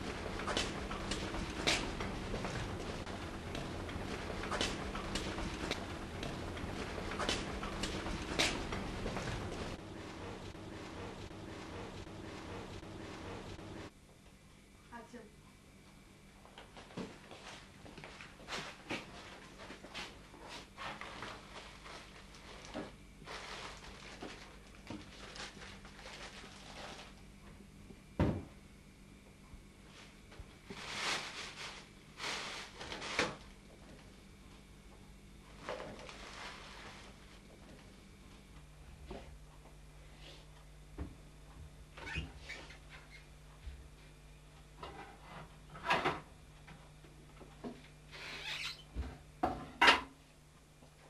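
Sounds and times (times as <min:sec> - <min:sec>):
low steady hum: 0:00.0 - 0:51.0
plastic bag rustling: 0:20.9 - 0:27.2, 0:30.6 - 0:33.4, 0:35.6 - 0:37.4.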